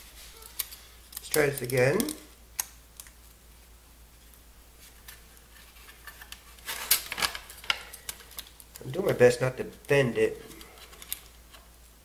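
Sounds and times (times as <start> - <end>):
plastic ribbon clicks and crinkles: 0.4 - 3.2, 6.2 - 9.9.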